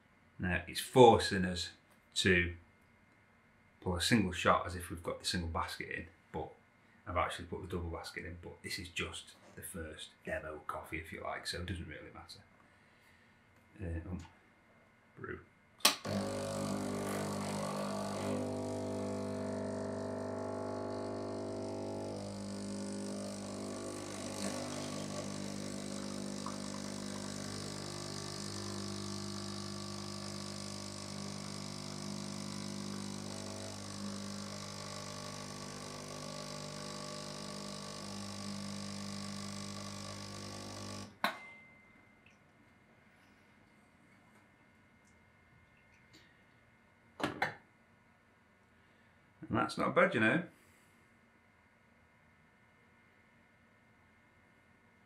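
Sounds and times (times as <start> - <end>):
espresso machine pump humming: 15.9 - 41.2.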